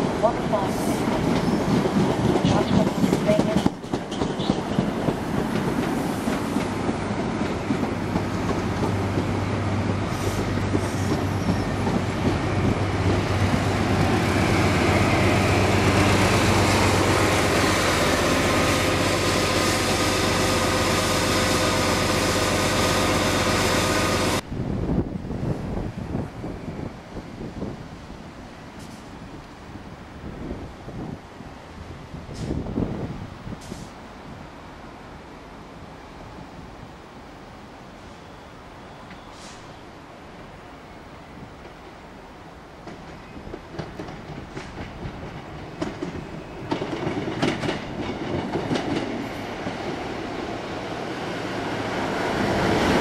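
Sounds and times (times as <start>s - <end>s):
train wheels rumbling and clattering: 0.0s - 24.4s, 42.8s - 53.0s.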